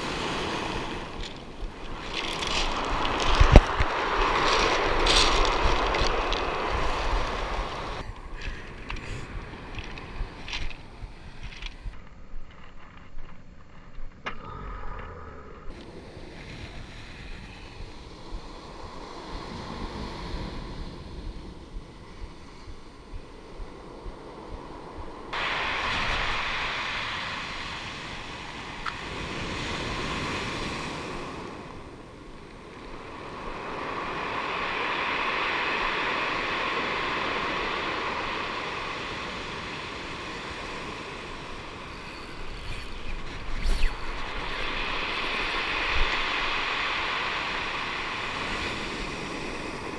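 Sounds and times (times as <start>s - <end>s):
surf on pebble beach: 0.0s - 11.9s, 15.8s - 49.9s
wind on microphone: 0.0s - 12.6s, 15.7s - 49.9s.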